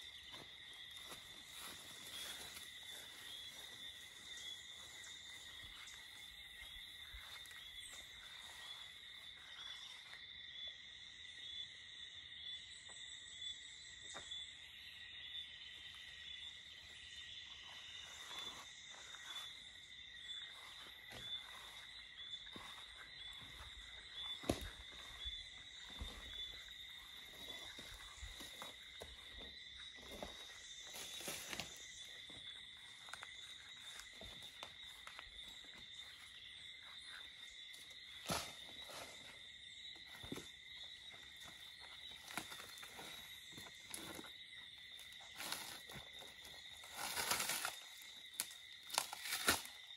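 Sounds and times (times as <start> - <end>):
insects shrilling: 42.1 - 49.9.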